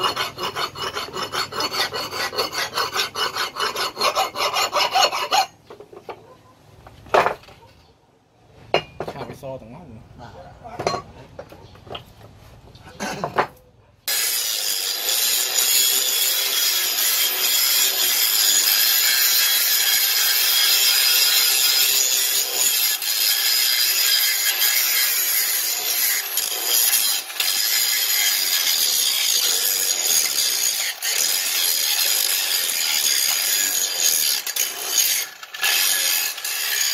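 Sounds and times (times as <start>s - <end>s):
angle grinder grinding metal: 0.0s - 5.8s, 14.1s - 36.9s.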